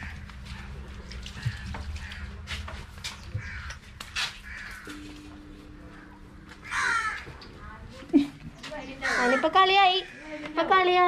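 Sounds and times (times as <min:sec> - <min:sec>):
crows cawing: 0:00.0 - 0:07.5, 0:08.8 - 0:11.0.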